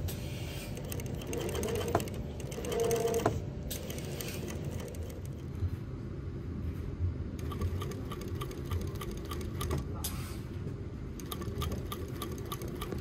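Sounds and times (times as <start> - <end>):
sewing machine needle clicking: 11.2 - 13.0.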